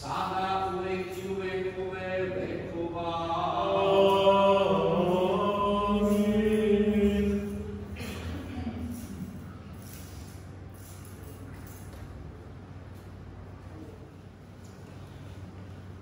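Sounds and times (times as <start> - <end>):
liturgical chanting: 0.0 - 9.3.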